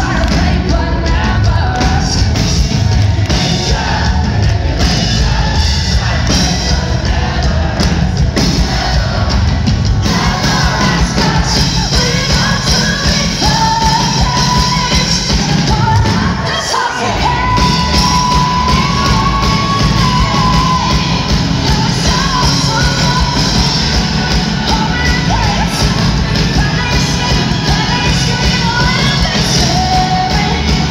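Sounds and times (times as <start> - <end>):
woman singing: 0.0 - 2.4, 10.0 - 30.9
crowd yelling: 0.0 - 30.9
live pop-rock band: 0.0 - 30.9.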